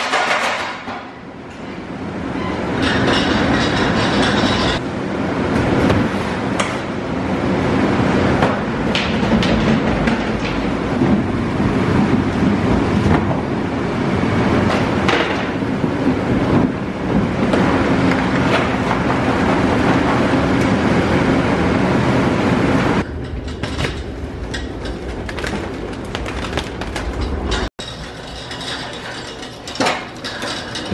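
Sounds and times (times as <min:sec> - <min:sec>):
refrigeration fans whirring: 0:00.0 - 0:30.9.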